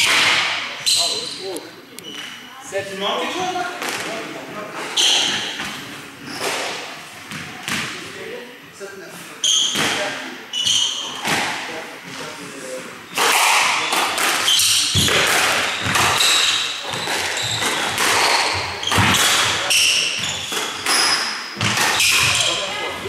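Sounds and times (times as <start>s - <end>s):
squash ball hitting rackets and walls: 0.0s - 1.1s, 5.0s - 8.0s, 9.6s - 12.3s, 13.1s - 23.0s
shoes squeaking on wooden floor: 4.6s - 6.6s, 9.4s - 11.3s, 14.4s - 23.0s.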